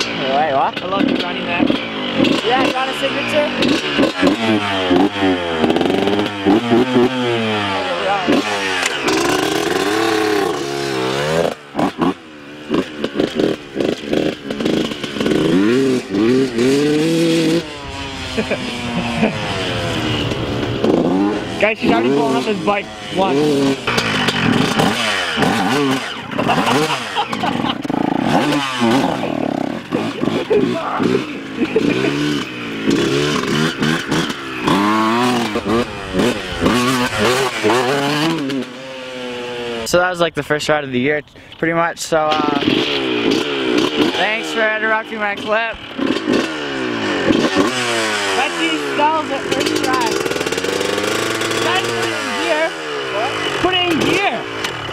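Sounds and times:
dirt bike engine revving: 0:00.0 - 0:40.3, 0:42.1 - 0:54.9.

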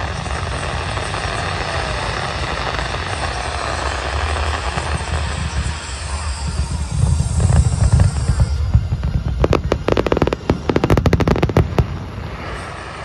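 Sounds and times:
fireworks crackling pops: 0:00.0 - 0:13.0
low rumble: 0:04.2 - 0:13.0.

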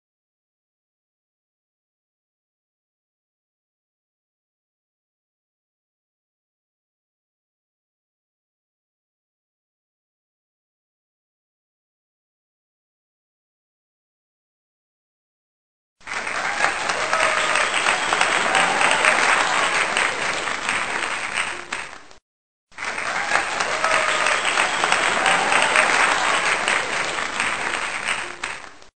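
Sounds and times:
crowd applause and cheering: 0:16.0 - 0:28.9.

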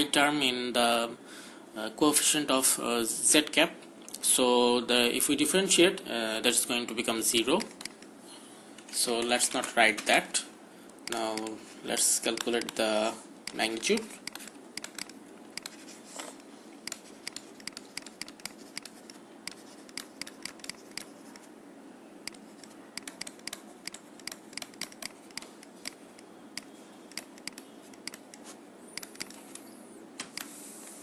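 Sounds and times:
faint background hum: 0:00.0 - 0:31.0
stylus tapping on screen: 0:13.4 - 0:15.9, 0:16.8 - 0:21.5, 0:22.3 - 0:29.4.

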